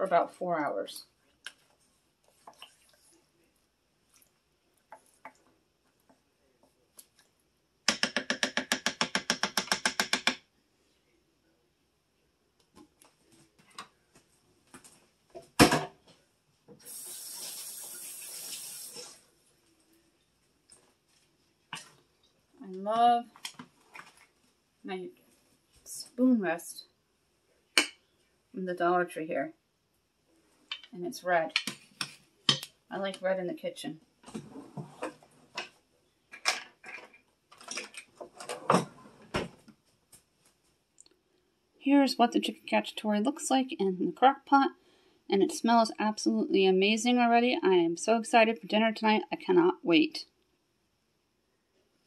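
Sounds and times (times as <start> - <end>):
kitchen items clattering on countertop: 34.3 - 39.5.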